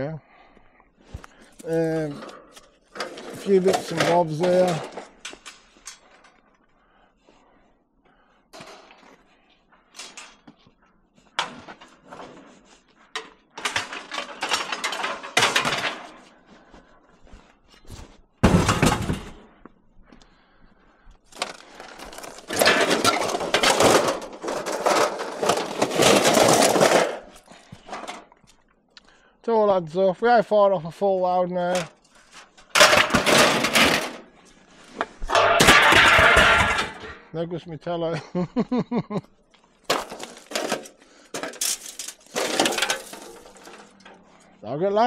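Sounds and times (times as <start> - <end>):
scrap metal clattering into truck bed: 22.5 - 27.3, 32.7 - 34.2, 35.3 - 37.2, 39.9 - 44.2.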